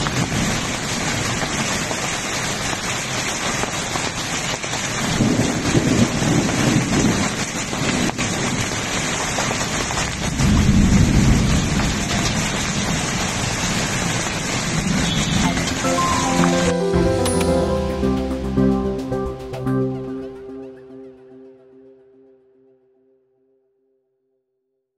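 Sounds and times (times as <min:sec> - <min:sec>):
heavy rain on paved road: 0:00.0 - 0:18.9
low thunder rumbles: 0:05.0 - 0:08.8, 0:09.8 - 0:15.4.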